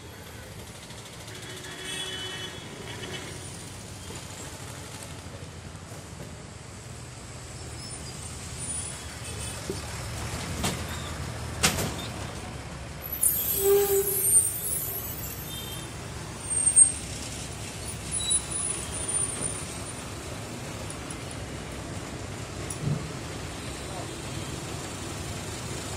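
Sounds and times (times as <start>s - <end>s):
bus passing close by: 0.0s - 25.9s
street traffic: 0.0s - 25.9s
air brakes hissing: 13.0s - 20.1s.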